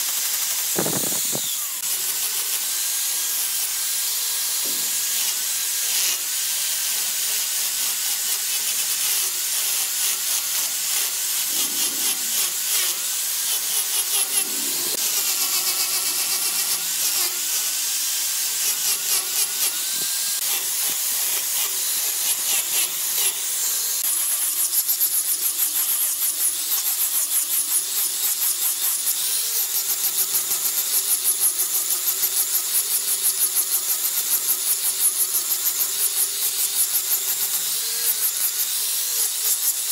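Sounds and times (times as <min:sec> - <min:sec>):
angle grinder sanding wood: 0:00.0 - 0:29.9.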